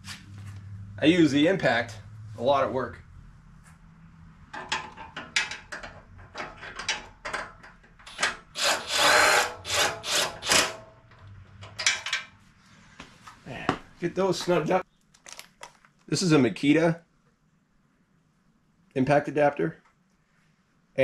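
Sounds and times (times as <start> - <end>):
socket and bolts rattling: 4.5 - 8.4
right-angle drill running: 8.6 - 10.8.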